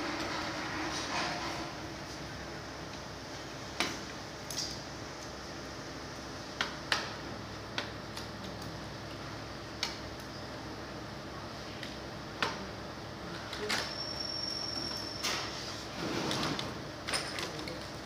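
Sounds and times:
machine hum: 0:00.0 - 0:13.6.

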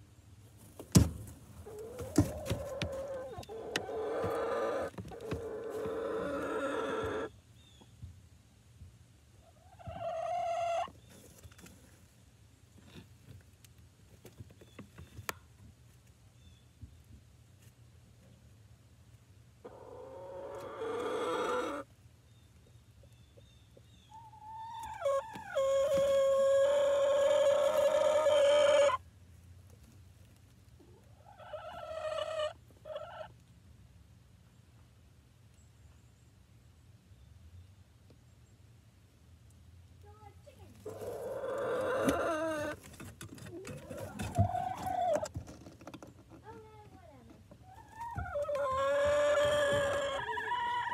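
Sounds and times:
hens calling: 0:01.6 - 0:07.3, 0:09.4 - 0:11.0, 0:19.6 - 0:21.9, 0:24.1 - 0:29.0, 0:30.8 - 0:33.3, 0:40.8 - 0:42.9, 0:43.6 - 0:45.3, 0:47.6 - 0:50.9.

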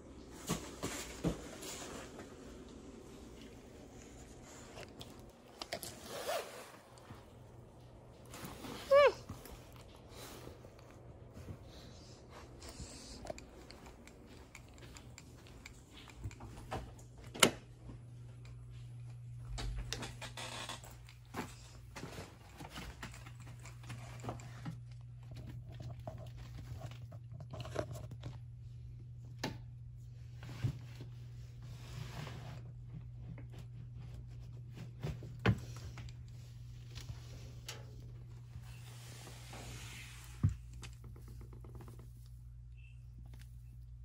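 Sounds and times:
rustling and crinkling objects: 0:00.0 - 0:29.3
steady low hum: 0:00.0 - 0:44.0.

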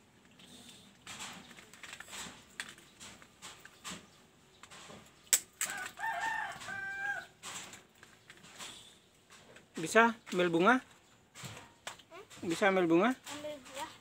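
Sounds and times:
rooster crowing: 0:05.6 - 0:07.4.

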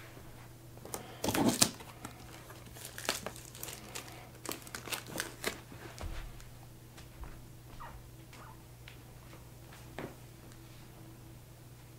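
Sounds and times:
plastic shrink-wrap crinkling: 0:00.8 - 0:06.0.

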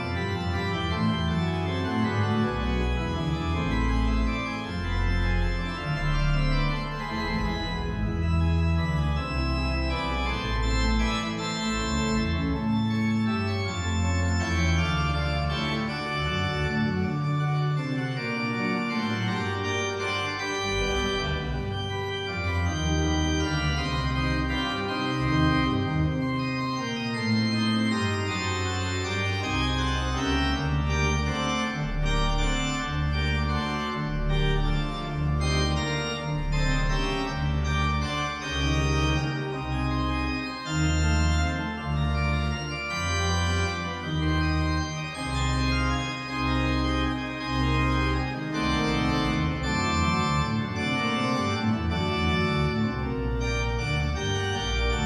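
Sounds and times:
organ pedal bass notes: 0:00.0 - 0:55.0
pipe organ chords: 0:00.0 - 0:55.0.

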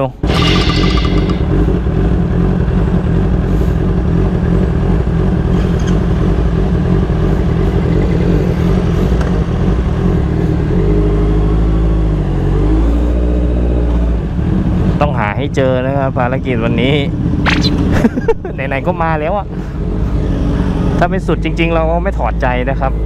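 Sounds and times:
motorcycle engine rumble: 0:00.0 - 0:12.5.

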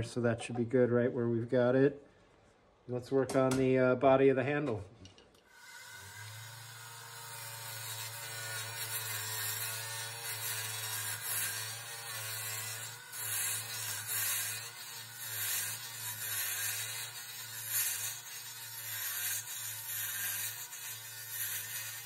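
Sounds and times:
low hum of lathe: 0:05.5 - 0:22.0.

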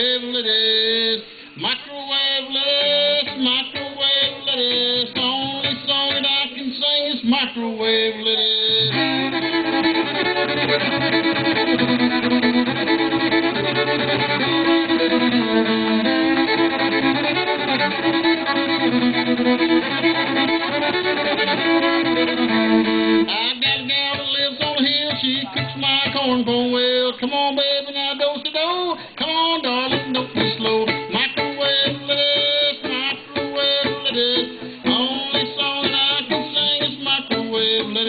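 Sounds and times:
bowed fiddle tune: 0:08.6 - 0:25.8, 0:29.9 - 0:38.0.

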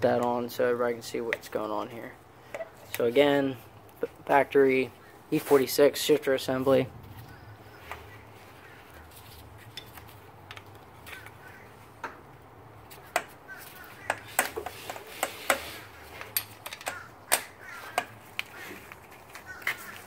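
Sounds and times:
metal parts clicking and clacking: 0:14.3 - 0:18.2.

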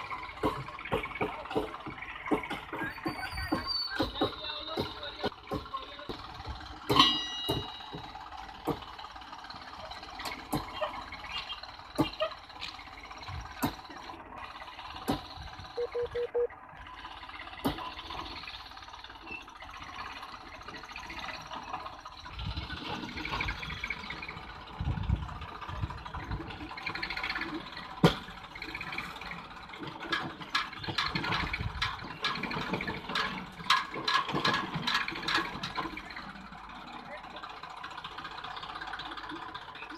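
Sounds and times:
tractor engine running low: 0:00.0 - 0:39.9
metal clanks: 0:00.1 - 0:11.2, 0:26.8 - 0:36.3
sharp clicks and knocks: 0:29.8 - 0:36.2.

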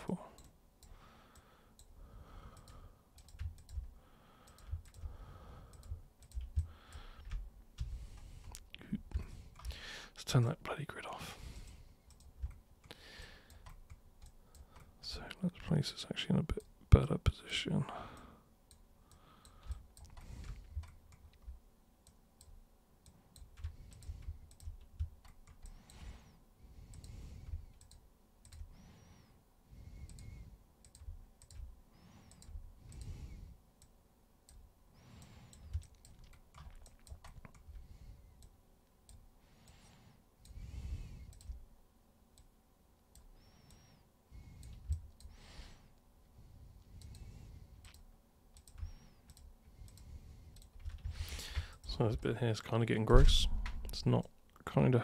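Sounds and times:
computer mouse clicks: 0:00.4 - 0:01.9, 0:02.5 - 0:09.8, 0:11.6 - 0:15.4, 0:18.2 - 0:26.3, 0:26.9 - 0:29.3, 0:30.0 - 0:33.2, 0:33.8 - 0:41.7, 0:43.1 - 0:45.4, 0:46.8 - 0:51.9
soft low thumps: 0:53.1 - 0:54.1.

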